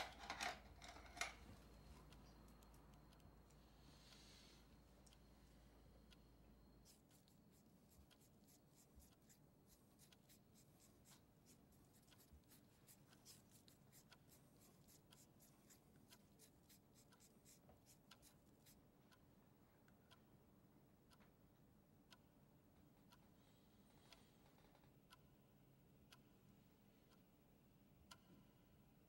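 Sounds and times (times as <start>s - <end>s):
faint low hum: 0.0s - 29.0s
faint small ticks and clicks: 6.1s - 19.3s.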